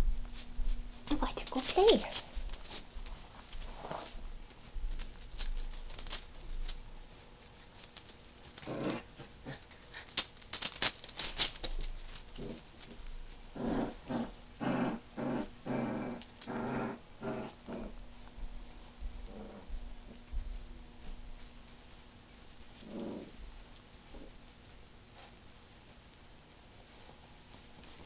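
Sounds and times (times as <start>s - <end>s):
paws and claws scuffling: 0.3s - 14.4s, 18.2s - 28.0s
puppies growling and yapping: 8.4s - 18.0s, 22.8s - 23.4s.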